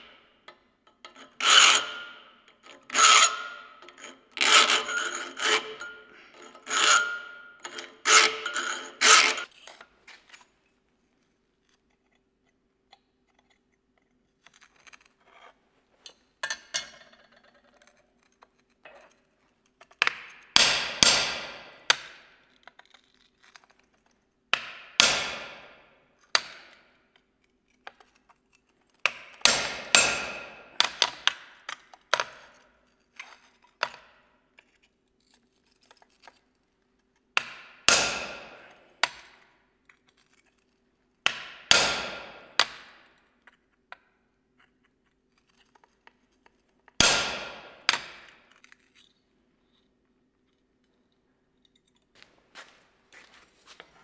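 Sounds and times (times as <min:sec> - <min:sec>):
metal file rasping on steel: 0:01.1 - 0:09.5
hammer striking chisel on steel: 0:20.0 - 0:22.2, 0:24.6 - 0:25.8, 0:29.1 - 0:31.4, 0:37.4 - 0:39.3, 0:41.2 - 0:43.1, 0:46.9 - 0:48.4.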